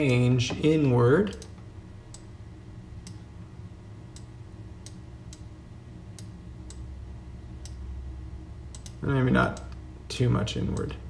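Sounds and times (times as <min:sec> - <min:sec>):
steady low hum: 0:00.0 - 0:11.0
computer mouse clicking: 0:08.7 - 0:09.8.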